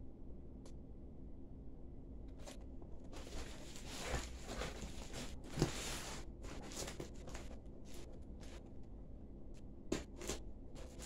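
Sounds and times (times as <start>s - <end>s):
cardboard rustling and scraping: 2.4s - 8.7s, 10.0s - 11.0s.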